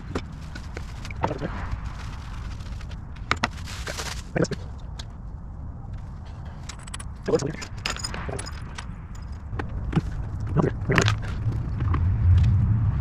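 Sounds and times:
rustle: 0.0 - 4.8
low background rumble: 0.0 - 13.0.

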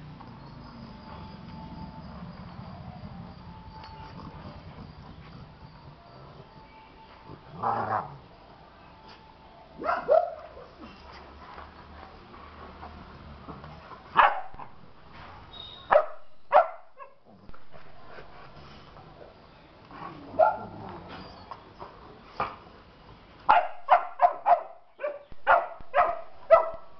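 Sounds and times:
dogs barking and yelping: 0.5 - 6.6, 9.0 - 12.9, 13.9 - 14.8, 15.9 - 18.8, 20.0 - 21.6, 23.5 - 26.9.

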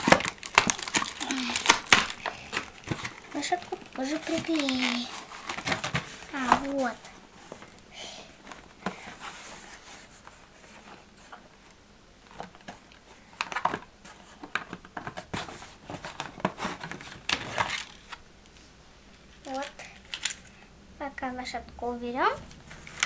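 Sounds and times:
packaging crinkling: 0.0 - 7.0, 14.5 - 18.2, 19.4 - 20.5.

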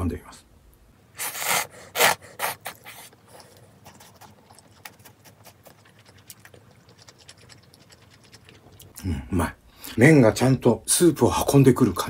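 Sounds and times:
person slurping noodles: 1.2 - 9.3
chewing clicks: 2.9 - 9.0.

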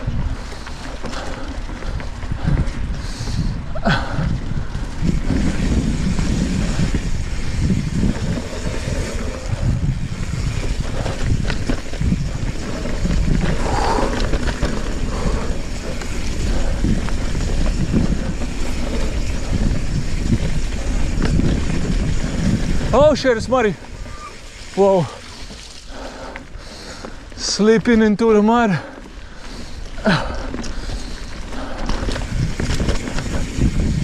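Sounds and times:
bike knocks and rattles: 0.0 - 23.1, 29.2 - 34.0
wind rumble on microphone: 0.0 - 27.4, 28.8 - 34.0
tyres rolling through mud: 0.0 - 34.0.

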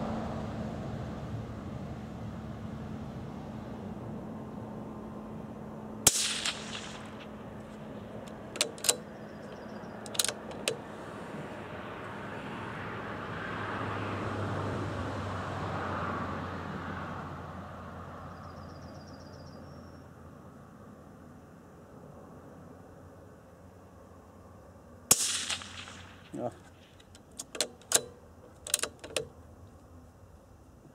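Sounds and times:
soft background rush: 0.0 - 15.4
suppressed rifle shot: 6.0 - 9.2, 25.1 - 27.0
rifle bolt clicks: 6.1 - 10.9, 25.1 - 29.3.

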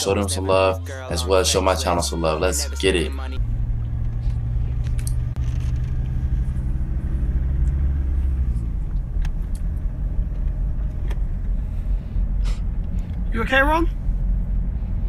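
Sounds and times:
car driving on road from inside: 3.4 - 15.0.

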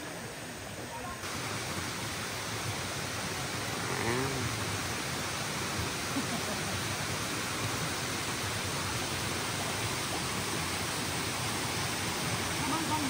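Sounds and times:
stream water running over rocks: 0.0 - 13.0.

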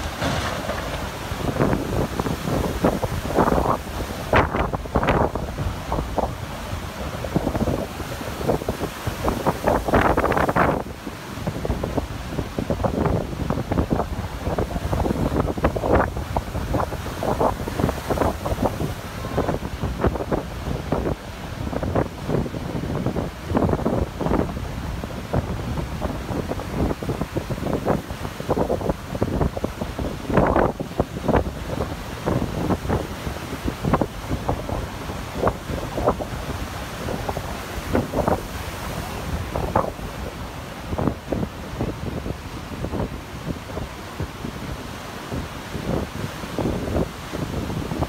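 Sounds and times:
surf breaking on beach: 0.0 - 48.0
wind buffeting microphone: 0.0 - 48.0.

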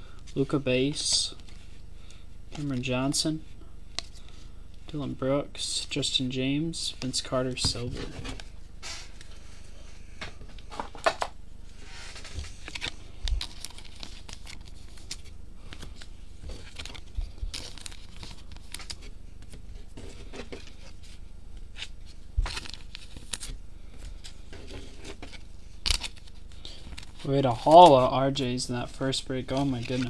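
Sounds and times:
cards rustling: 10.6 - 30.0
foil wrapper tearing and crinkling: 25.8 - 27.2.

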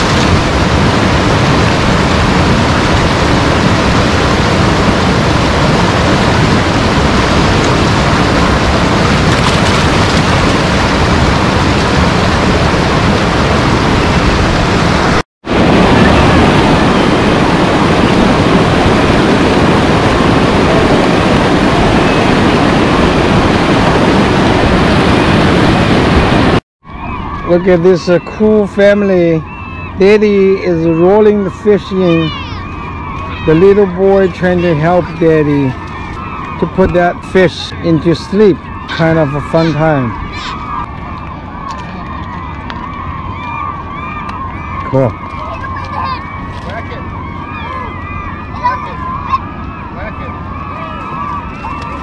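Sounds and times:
water churning over rocks: 0.0 - 15.1.

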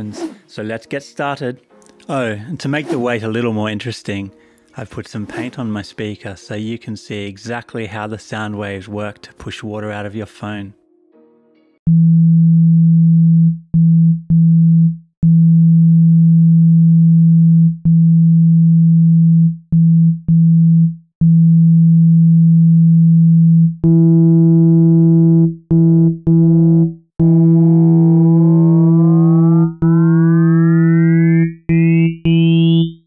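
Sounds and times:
pulsing synthesized tone: 23.8 - 33.0.

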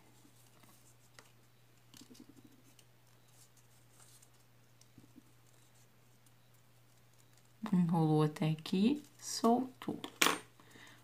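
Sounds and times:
low steady hum: 0.0 - 11.0
paper rustling: 0.2 - 7.6
soft ticks of paper: 0.4 - 7.7.

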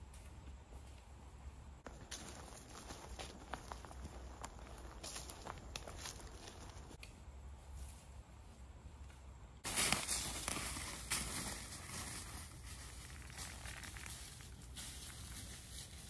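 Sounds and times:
footsteps crunching through dry leaves: 1.8 - 7.0, 9.6 - 16.0.

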